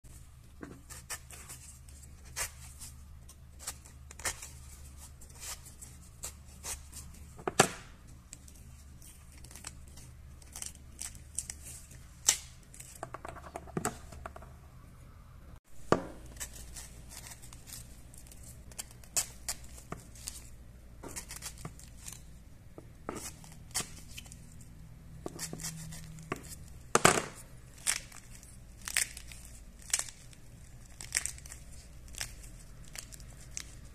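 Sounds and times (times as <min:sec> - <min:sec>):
pomegranate rind cracking and tearing: 0:08.2 - 0:13.0, 0:25.3 - 0:33.9.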